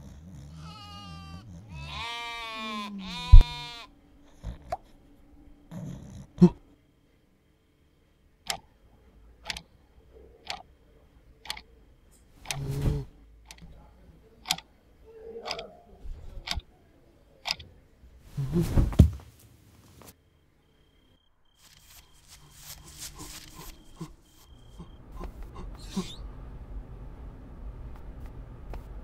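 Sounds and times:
alarm clock ticking: 14.5 - 14.7, 15.5 - 15.7.

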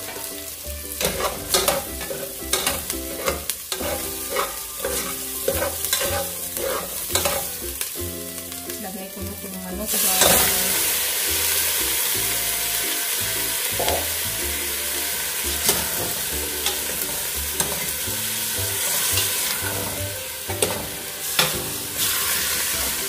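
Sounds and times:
chicken sizzling in a pot: 0.0 - 23.0
metal spatula clinking on pot: 1.0 - 7.8, 15.6 - 18.0, 18.8 - 21.7.

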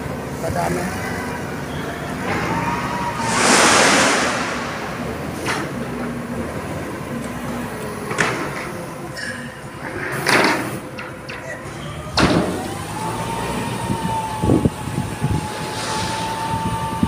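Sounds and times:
machinery rumble: 3.0 - 6.6
burst of rushing noise: 3.1 - 6.1.

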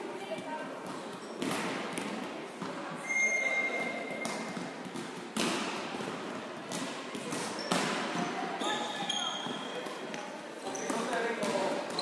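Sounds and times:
volleyball thuds echoing: 4.2 - 8.3.

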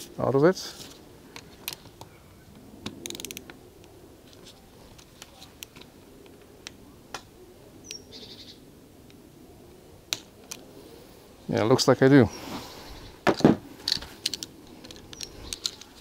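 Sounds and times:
torque wrench ratcheting and clicking: 3.0 - 3.4.

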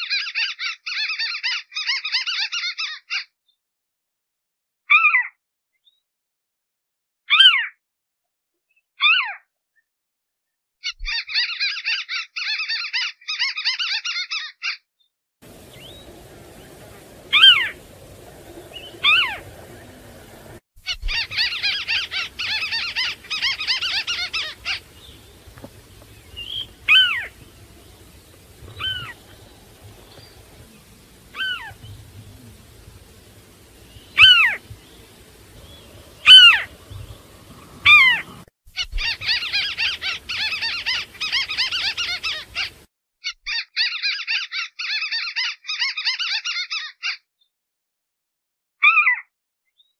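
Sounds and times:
bird downward-sliding calls: 15.5 - 42.8
bird harsh chattering: 15.5 - 42.8.

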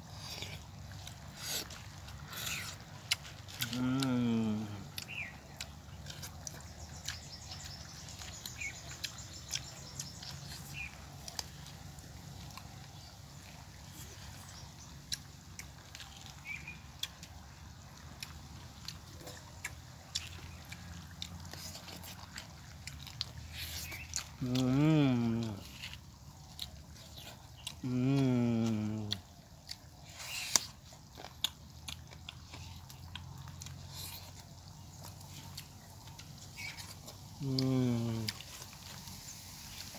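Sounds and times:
chewing: 0.0 - 39.9
man humming: 3.6 - 5.0, 24.4 - 25.7, 27.8 - 29.2, 37.4 - 38.4.

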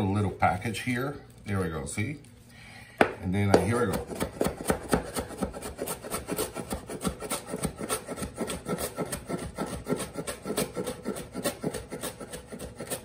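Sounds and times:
knife chopping on wooden board: 3.0 - 13.0.

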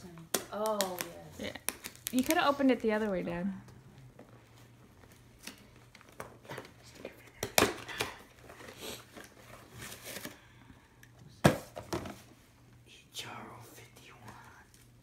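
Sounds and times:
gift wrapping crinkling: 0.6 - 3.2.

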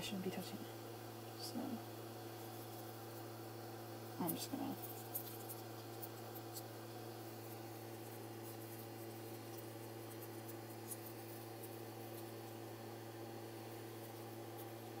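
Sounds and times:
steady low hum: 0.0 - 15.0
aluminum foil crinkling: 4.2 - 12.7.

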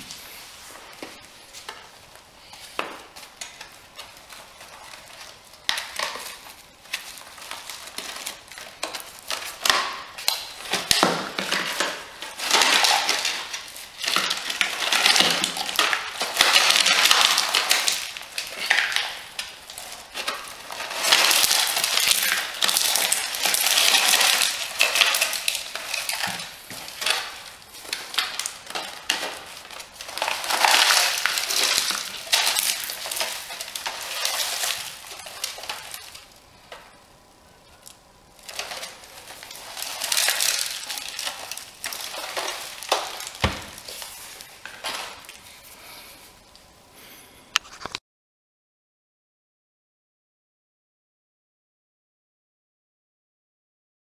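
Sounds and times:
ceramic fragments crunching and rattling: 3.4 - 36.3, 38.4 - 45.3.

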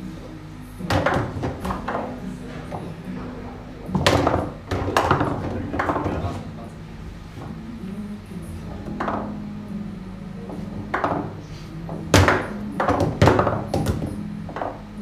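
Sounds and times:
foosball ball knocking: 0.8 - 6.5, 8.7 - 9.5, 10.4 - 15.0
foosball rods clacking: 0.8 - 6.5, 8.8 - 9.4, 10.5 - 15.0.

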